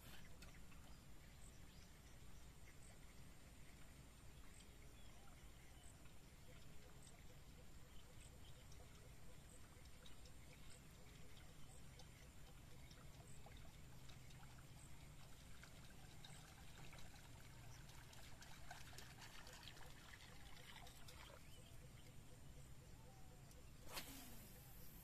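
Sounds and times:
faint water splashing: 0:05.0 - 0:22.3.

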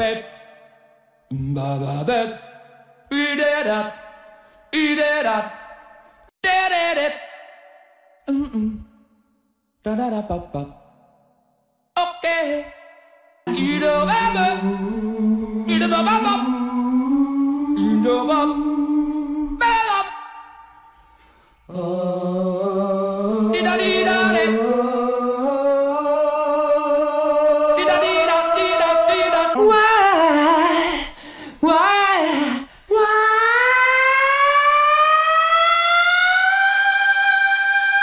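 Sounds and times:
man singing wordlessly: 0:01.3 - 0:02.4, 0:03.1 - 0:04.0, 0:04.7 - 0:05.6, 0:09.8 - 0:10.8, 0:13.5 - 0:20.1, 0:21.7 - 0:30.8.

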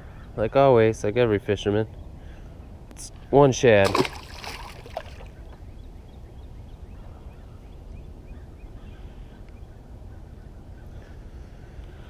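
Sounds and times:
distant birds chirping: 0:00.0 - 0:12.0
fish splashing into water: 0:03.8 - 0:05.4.

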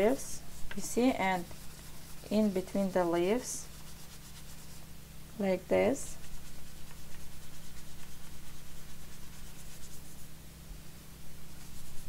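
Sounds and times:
fingers rubbing leaves: 0:06.0 - 0:10.2.

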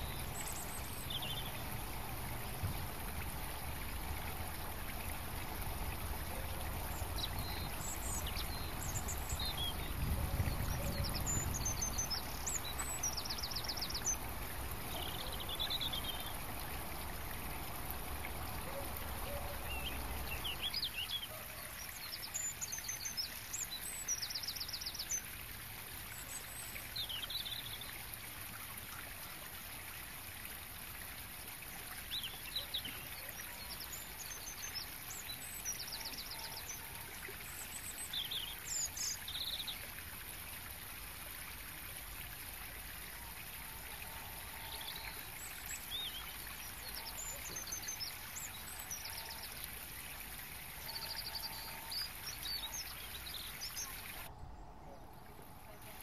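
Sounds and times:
small birds chirping: 0:00.0 - 0:01.9, 0:05.8 - 0:25.3.

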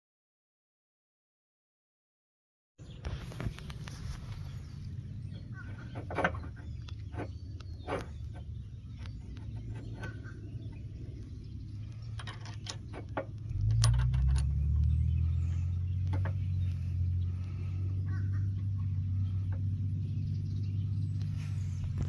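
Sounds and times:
low rumble: 0:06.6 - 0:22.0
metallic clicks and clinks: 0:12.1 - 0:14.9.

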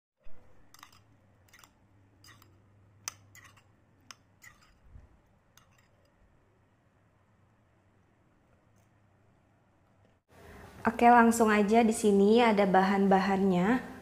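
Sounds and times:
metal spoon clinking on ceramic bowl: 0:00.3 - 0:04.8, 0:05.6 - 0:06.2.

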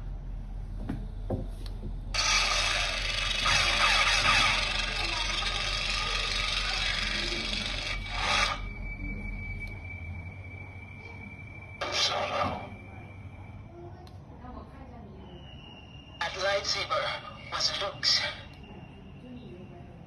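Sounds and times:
toy lightsaber ignition and hum: 0:02.2 - 0:08.8.

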